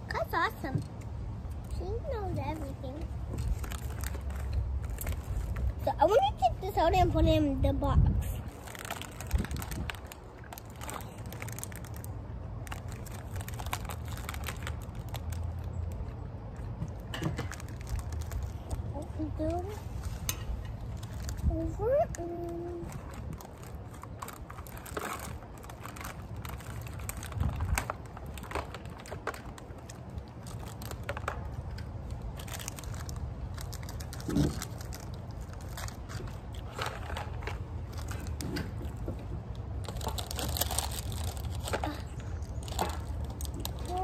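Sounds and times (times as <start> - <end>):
steady low rumble: 0.0 - 44.0
plastic wrapper crinkling: 1.6 - 6.2, 8.4 - 44.0.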